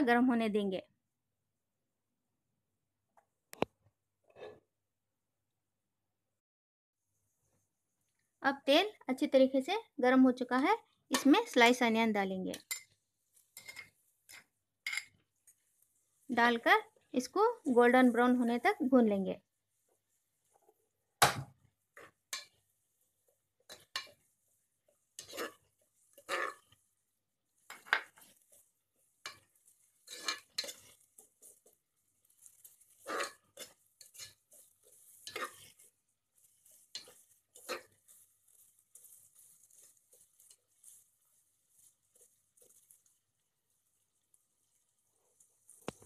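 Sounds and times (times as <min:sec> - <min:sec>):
faint sizzle of frying: 0:07.0 - 0:46.0
spoon scraping a metal pot: 0:12.5 - 0:15.6, 0:21.9 - 0:22.6, 0:23.6 - 0:24.3, 0:24.9 - 0:26.8, 0:27.6 - 0:43.1.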